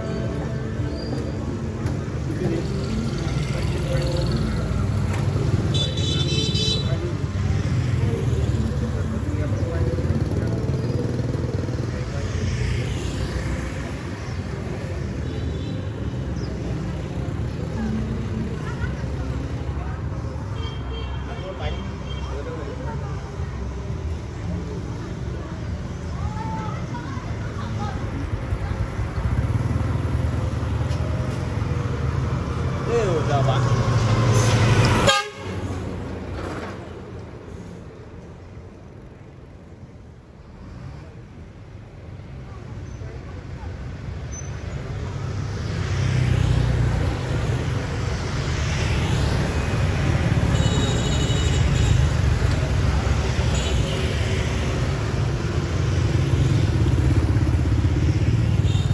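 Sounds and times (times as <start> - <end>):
traffic engine rumble: 0.0 - 58.9
vehicle horn honking: 35.0 - 35.7
motorbikes riding past: 51.6 - 58.9.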